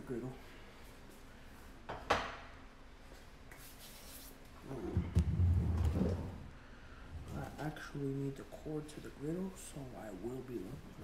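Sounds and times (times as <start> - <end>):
rubbing and bumping on microphone: 4.7 - 6.5.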